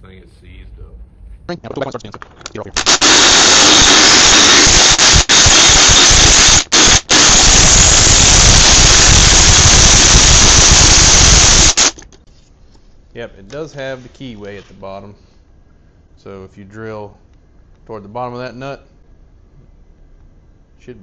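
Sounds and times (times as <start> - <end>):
cordless drill grinding metal: 2.8 - 12.0.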